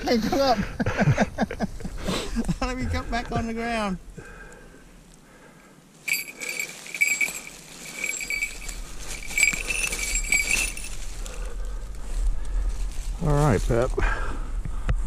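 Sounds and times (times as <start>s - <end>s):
dry leaves rustling: 6.0s - 13.9s
high-pitched ringing: 6.1s - 11.1s.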